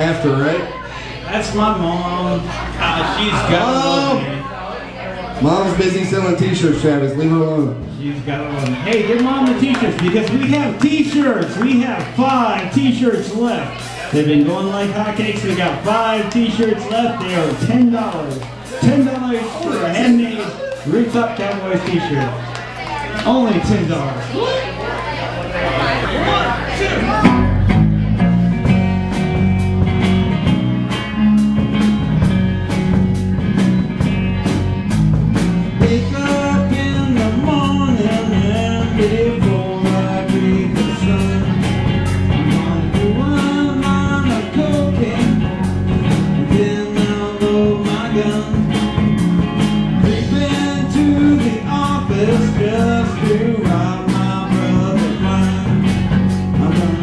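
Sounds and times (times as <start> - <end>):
bass guitar: 0.0 - 57.0
drum kit beat: 7.5 - 22.4, 27.2 - 57.0
lead guitar bending in pitch: 27.0 - 38.9
electric guitar: 27.0 - 57.0.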